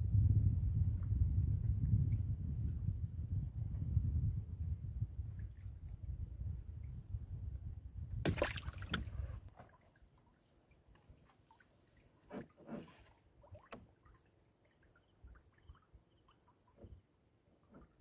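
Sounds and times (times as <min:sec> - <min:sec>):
net hauled over boat side: 0:08.1 - 0:18.0
water splashing and dripping: 0:08.3 - 0:11.7, 0:12.4 - 0:16.9.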